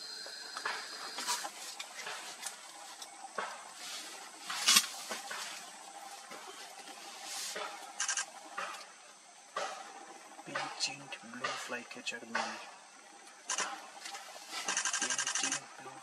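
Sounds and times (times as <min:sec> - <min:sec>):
bird ticks: 0:13.2 - 0:15.6.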